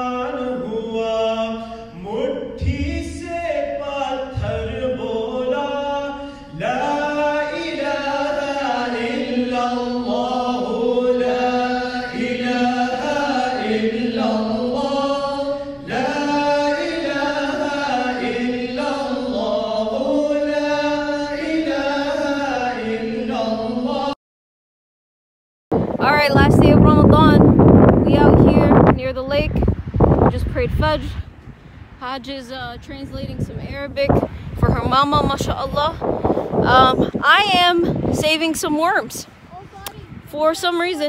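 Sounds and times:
devotional chanting: 0:00.0 - 0:24.2.

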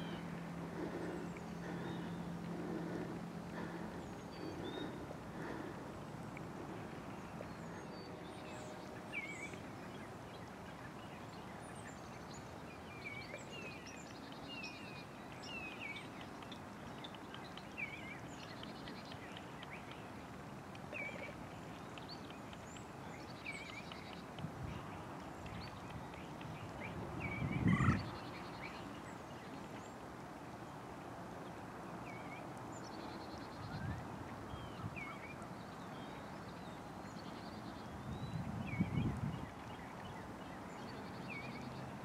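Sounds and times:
outdoor background rumble: 0:00.0 - 0:07.5
small birds chirping: 0:00.0 - 0:30.7
faint low hum: 0:00.0 - 0:42.0.

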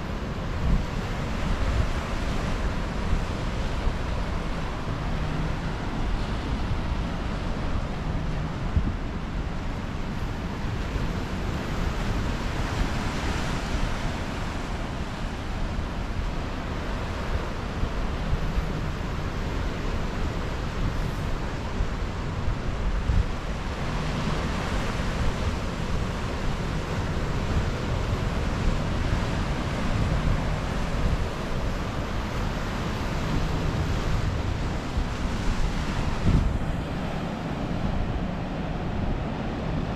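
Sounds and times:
wind buffeting microphone: 0:20.0 - 0:39.9.

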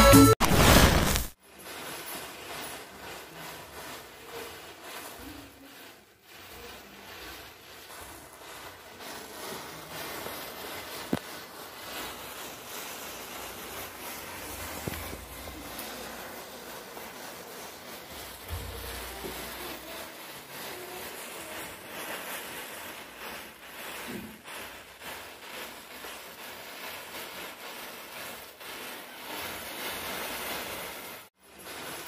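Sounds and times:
match heads flaring with hiss: 0:00.4 - 0:01.4.

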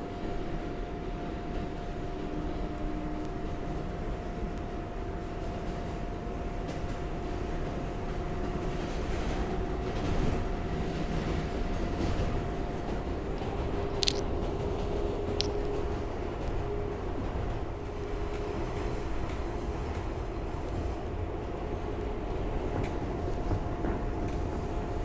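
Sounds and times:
wheels rumbling on rail: 0:00.0 - 0:25.0
train motor hum: 0:10.9 - 0:25.0.

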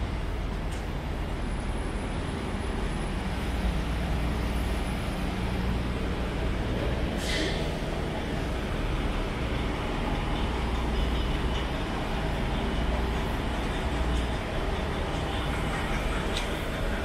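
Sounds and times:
short hiss: 0:07.2 - 0:07.8.

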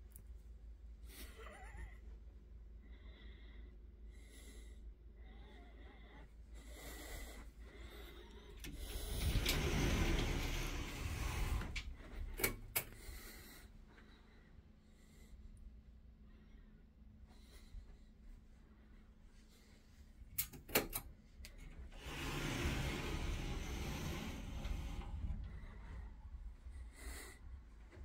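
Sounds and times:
soft breathing: 0:01.0 - 0:20.3, 0:21.8 - 0:28.0
sliding door rolling on track: 0:08.7 - 0:12.0, 0:21.9 - 0:26.0.

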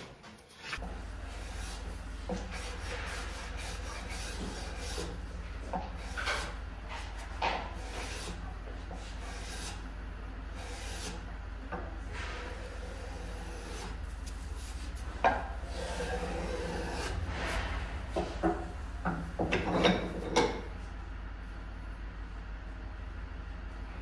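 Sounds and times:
hand plane shaving wood: 0:01.4 - 0:05.2, 0:07.8 - 0:08.4, 0:09.0 - 0:09.8, 0:10.6 - 0:11.2, 0:12.5 - 0:17.5.

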